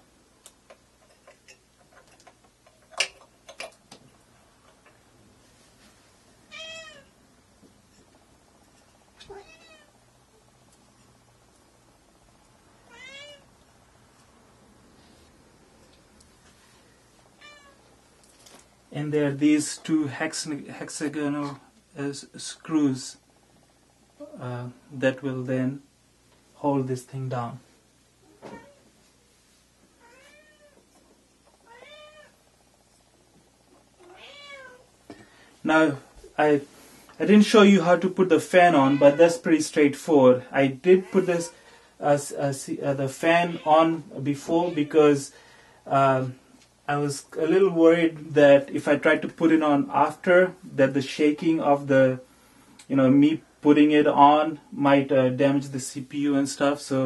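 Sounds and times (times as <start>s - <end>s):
cat meowing: 6.5s - 7.1s, 9.3s - 9.9s, 12.9s - 13.5s, 17.4s - 17.8s, 30.0s - 30.8s, 31.7s - 32.4s, 34.0s - 34.9s, 38.8s - 39.2s.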